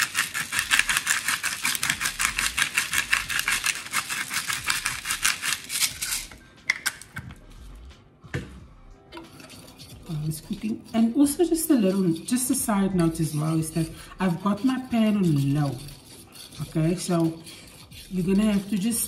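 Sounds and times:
pepper grinder ratcheting: 0.0s - 7.0s.

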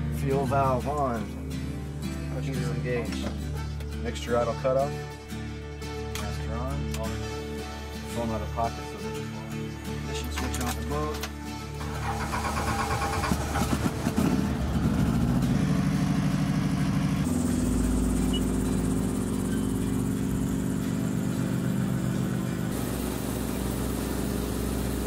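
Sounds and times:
starter cranking: 11.8s - 15.2s
helicopter engine running: 11.8s - 25.0s.

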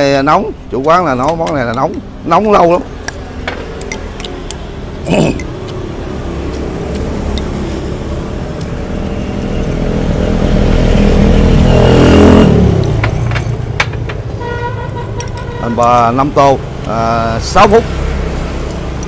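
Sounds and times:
motor vehicle passing: 2.2s - 13.8s.

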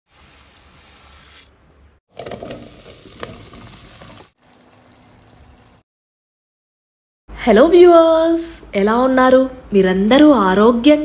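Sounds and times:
food sizzling in hot pan: 0.1s - 1.5s, 2.2s - 5.8s
frying and stirring: 0.1s - 1.5s, 2.1s - 5.8s.

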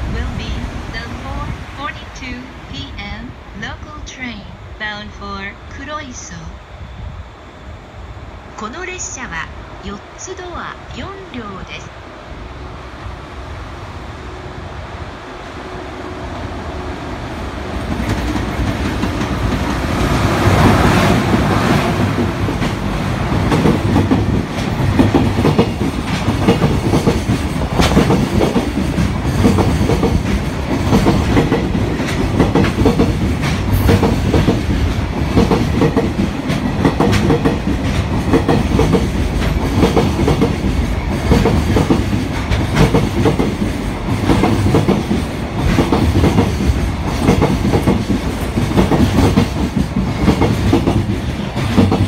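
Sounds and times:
electric locomotive passing: 0.0s - 52.0s
train wheels clicking on rails: 17.4s - 52.0s.

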